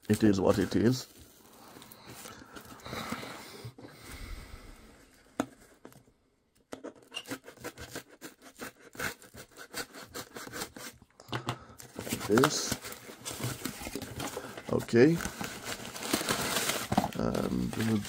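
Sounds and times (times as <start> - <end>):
knife cutting tape and cardboard: 7.0 - 11.0.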